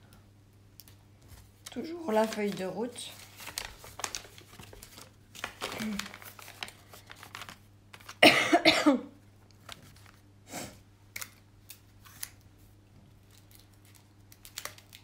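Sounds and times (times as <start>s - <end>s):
person coughing: 8.2s - 9.2s.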